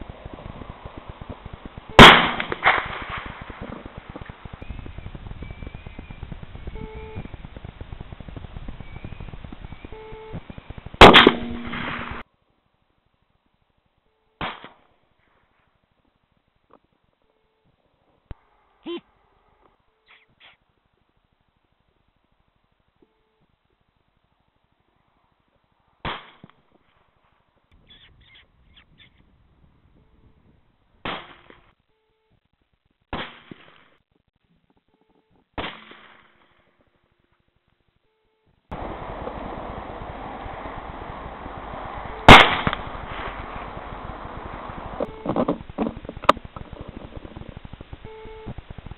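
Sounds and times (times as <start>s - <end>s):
rifle shot: 0.1s - 4.6s, 11.0s - 12.2s, 14.4s - 14.8s, 26.0s - 26.5s, 31.0s - 31.6s, 33.1s - 33.9s, 35.6s - 36.6s, 38.7s - 45.1s.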